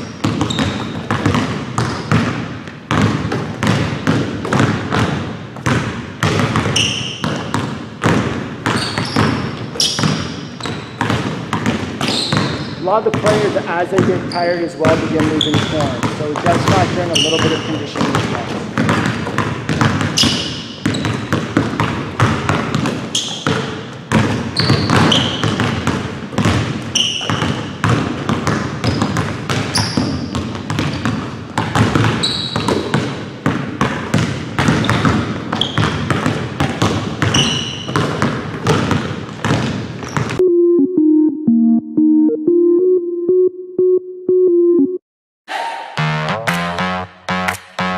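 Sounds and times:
basketballs bouncing on wooden floor: 0.0 - 40.4
sneakers squeaking: 0.0 - 40.4
synthesizer music: 40.4 - 45.0, 45.7 - 47.9.

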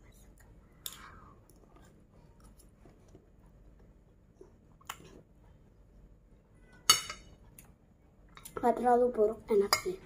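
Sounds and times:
faint chewing: 0.0 - 5.4.

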